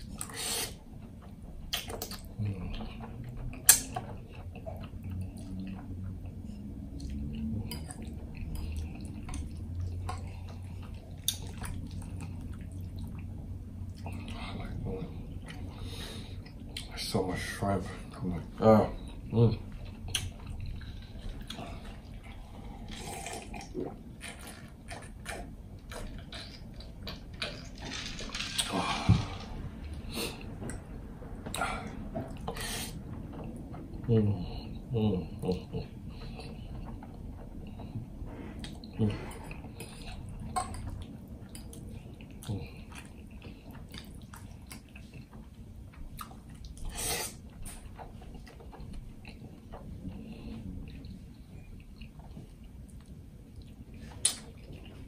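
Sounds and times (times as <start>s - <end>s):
wet chewing: 0.0s - 16.9s, 19.0s - 28.7s, 35.4s - 55.0s
lip and mouth clicks: 1.7s - 2.4s, 50.9s - 54.8s
gulping juice: 18.9s - 27.6s.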